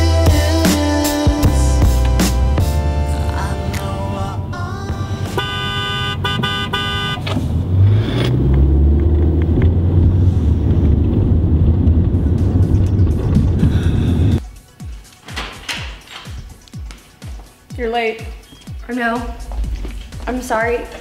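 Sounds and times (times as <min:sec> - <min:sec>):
car engine rumble: 0:01.8 - 0:14.4
road noise: 0:02.8 - 0:14.4
car horn honking: 0:05.2 - 0:07.4.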